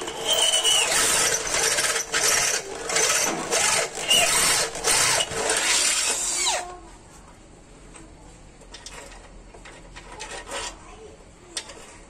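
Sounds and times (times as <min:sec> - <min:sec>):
electric drill boring into steel: 0:00.0 - 0:06.6.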